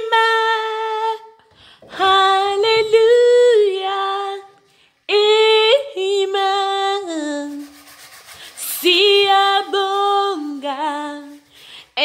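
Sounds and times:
woman singing unaccompanied: 0.0 - 7.8, 8.6 - 12.0.

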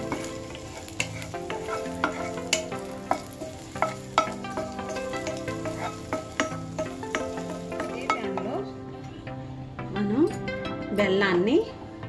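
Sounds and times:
spatula scraping a pan: 0.0 - 8.6
raisins frying in a pan: 0.0 - 8.9.

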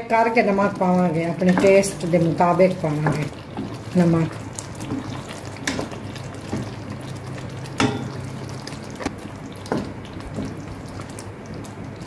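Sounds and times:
spoon stirring thick gravy: 0.3 - 12.0
spoon knocking against pot: 7.8 - 8.2.

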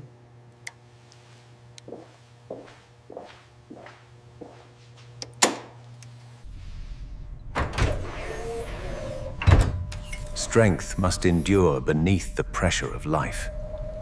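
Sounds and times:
low machine hum: 0.0 - 14.0
footsteps on hard floor: 1.2 - 5.1.

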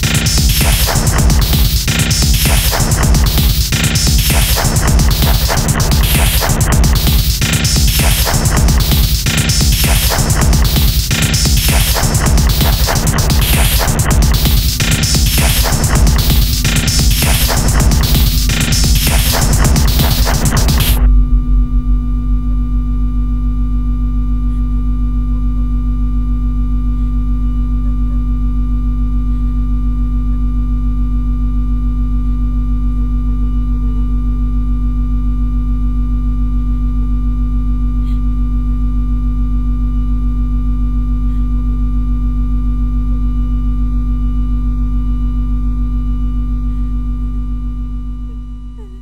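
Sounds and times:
electronic drone music: 0.0 - 24.2.

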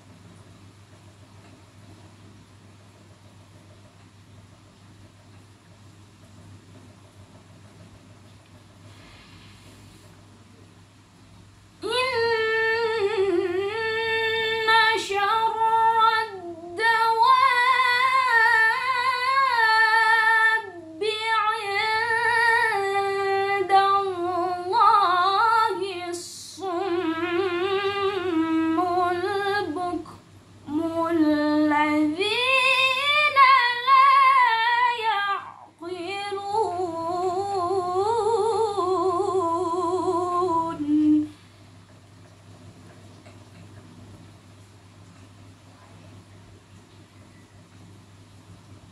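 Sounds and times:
woman reciting melodically: 11.8 - 41.4.

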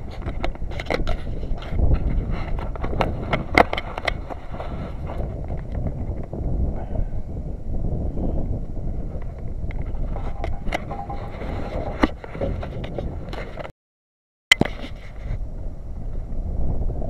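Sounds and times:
handling clicks and scrapes: 0.0 - 5.9, 9.7 - 13.7, 14.5 - 15.4
wind rumbling on microphone: 0.0 - 13.7, 14.6 - 17.0.

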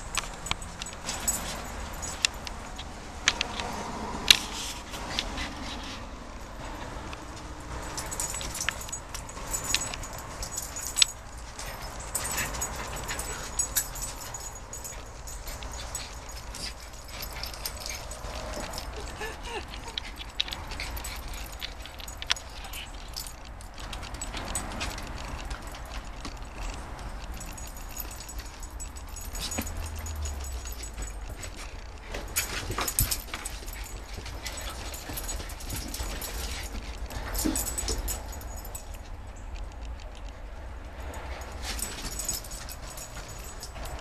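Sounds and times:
dogs scuffling on wooden deck: 7.9 - 38.8
dogs whimpering and yipping: 8.0 - 38.8.

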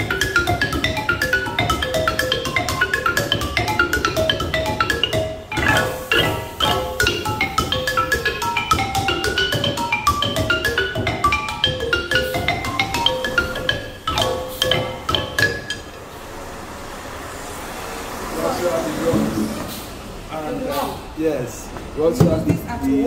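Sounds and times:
wooden xylophone notes: 0.0 - 16.6, 18.4 - 20.1.

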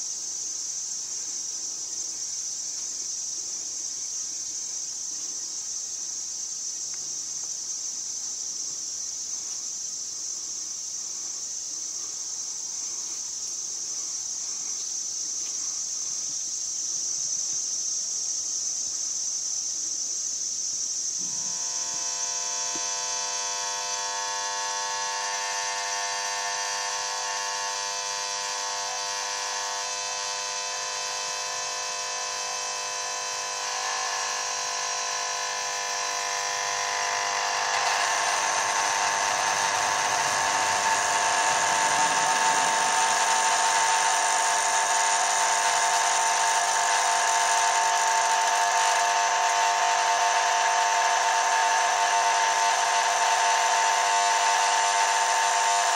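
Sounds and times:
electrical buzz of lamp ballast: 21.1 - 55.9.

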